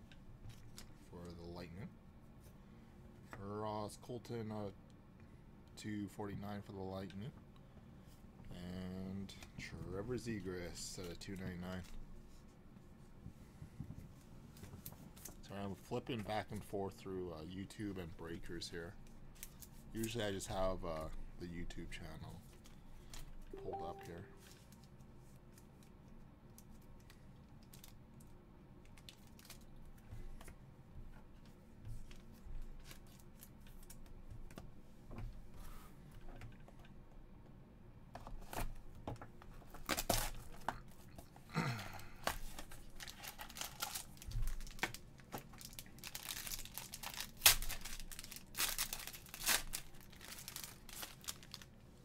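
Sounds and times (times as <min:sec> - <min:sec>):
foil wrapper tearing and crinkling: 0:42.9 - 0:45.0, 0:45.6 - 0:51.7.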